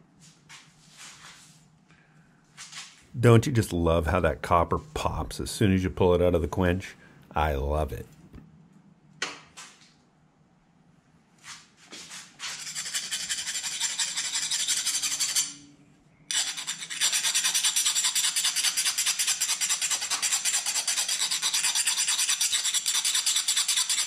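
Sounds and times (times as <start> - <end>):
towel rubbing knife blade: 12.4 - 15.7, 16.3 - 24.0.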